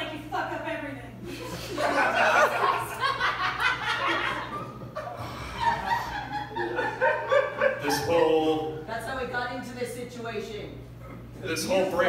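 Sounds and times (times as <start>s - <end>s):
audience laughing: 1.3s - 8.4s.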